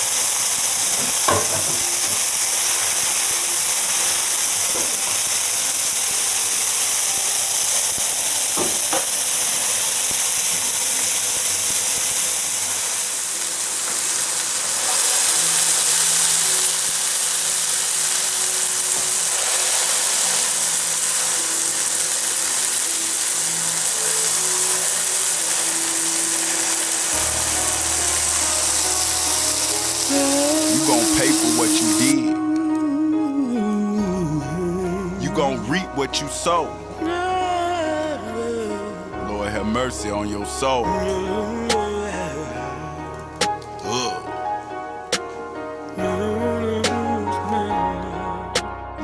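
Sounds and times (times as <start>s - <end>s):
sausage sizzling in skillet: 0.0s - 32.8s.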